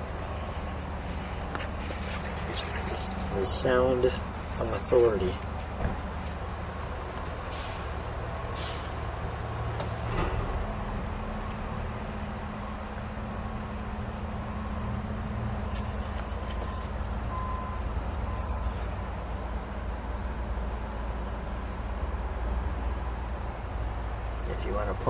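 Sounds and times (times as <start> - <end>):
paper pages turning: 0.0 - 3.4, 15.6 - 17.0.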